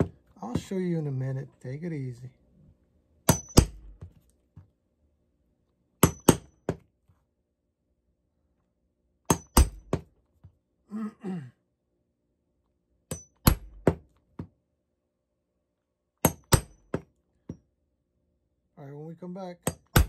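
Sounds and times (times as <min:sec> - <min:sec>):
hammer tapping metal punch: 0:03.3 - 0:04.0, 0:06.0 - 0:06.8, 0:13.1 - 0:14.0.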